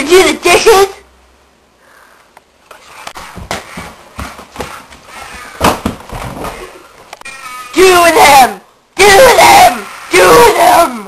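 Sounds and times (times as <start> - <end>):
rustling of people moving: 2.4 - 7.3
knocks and thumps: 3.2 - 6.8.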